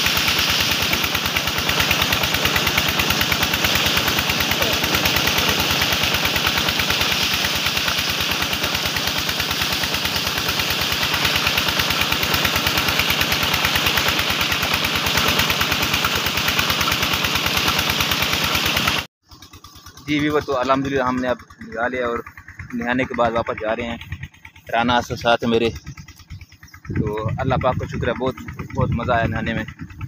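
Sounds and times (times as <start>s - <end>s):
water gushing into a tank: 0.0s - 19.1s
pump throbbing: 0.0s - 30.0s.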